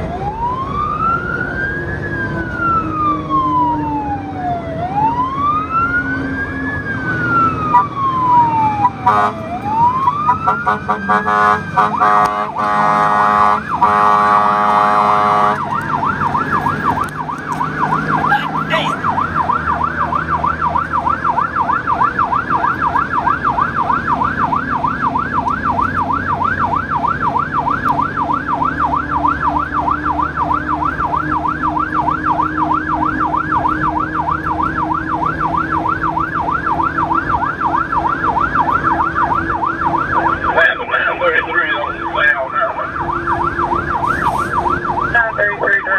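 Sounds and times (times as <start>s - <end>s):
siren wailing: 0.0s - 45.9s
siren yelp sweeping up and down: 0.0s - 45.9s
vehicle engine rumble and road noise: 0.0s - 45.9s
horn blasts: 9.0s - 9.5s, 10.4s - 15.8s.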